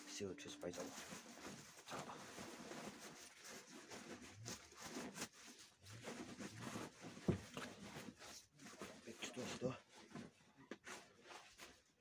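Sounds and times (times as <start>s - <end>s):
bag crumpling and rustling: 0.4s - 9.7s.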